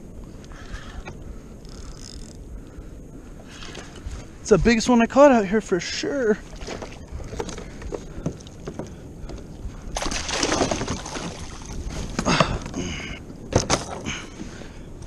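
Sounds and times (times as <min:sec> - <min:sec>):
fish thrashing in water: 0:09.9 - 0:12.3.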